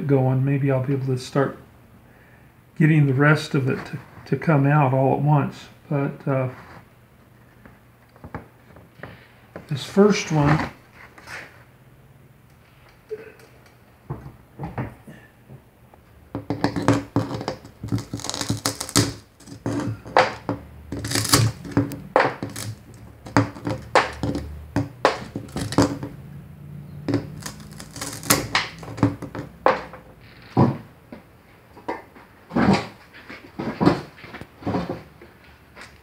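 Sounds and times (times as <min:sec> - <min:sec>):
glass cracking and clinking: 0:16.6 - 0:26.1, 0:27.1 - 0:29.5.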